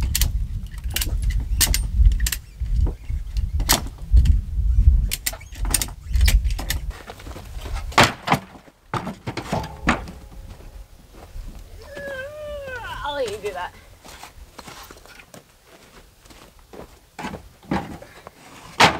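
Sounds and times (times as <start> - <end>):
wooden boards knocking together: 7.9 - 10.5, 17.2 - 18.9.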